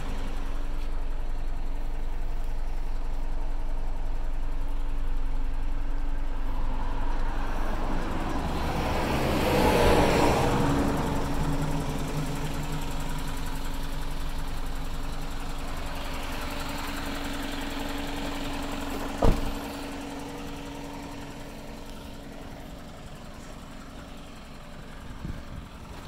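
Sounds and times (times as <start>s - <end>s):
truck engine idling: 0.0s - 26.0s
cab door slamming: 19.1s - 19.8s.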